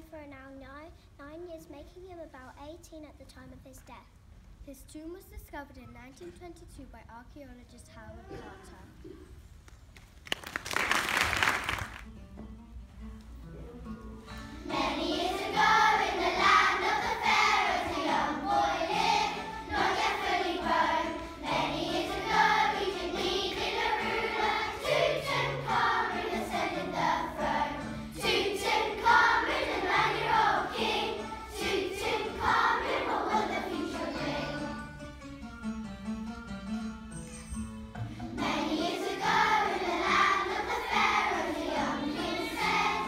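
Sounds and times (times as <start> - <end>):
instrumental accompaniment: 11.6 - 43.0
young children singing: 14.6 - 34.9, 38.2 - 43.0.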